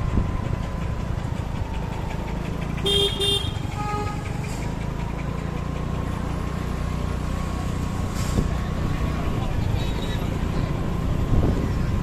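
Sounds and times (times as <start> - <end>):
engine and road rumble: 0.0 - 12.0
horn toots: 2.8 - 4.4.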